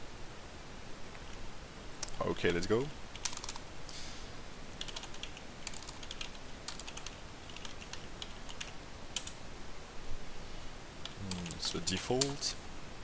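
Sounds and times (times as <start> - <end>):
keyboard typing clicks: 4.8 - 9.4.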